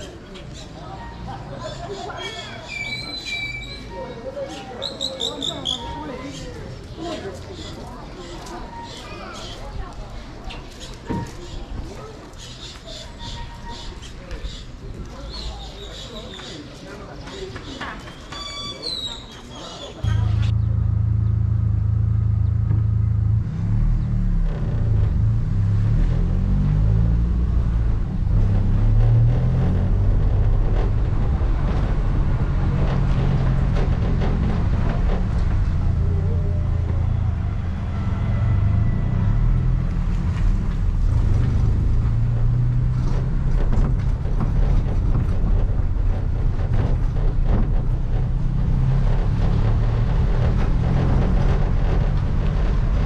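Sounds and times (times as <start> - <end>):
road noise: 0.0 - 53.0
vehicle engine running: 20.0 - 53.0.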